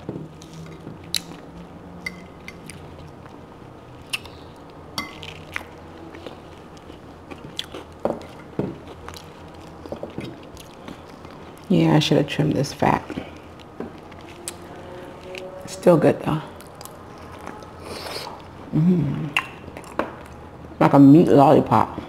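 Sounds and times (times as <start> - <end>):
chewing and mouth smacks: 0.0 - 11.7, 13.1 - 15.5, 16.6 - 18.5, 19.3 - 20.4.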